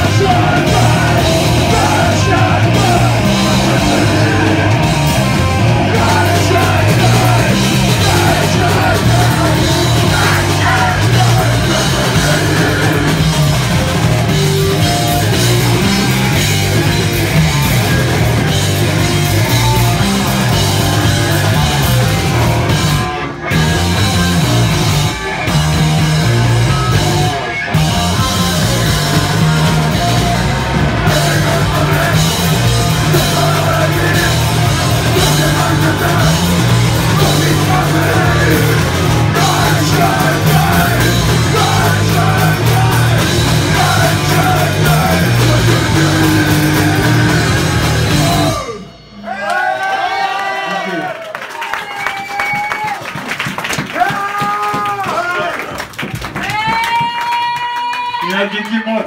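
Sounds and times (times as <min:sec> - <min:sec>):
shouted vocals: 0:00.0 - 0:16.5, 0:28.2 - 0:53.0, 0:56.4 - 0:59.0
punk rock band playing: 0:00.0 - 0:50.4.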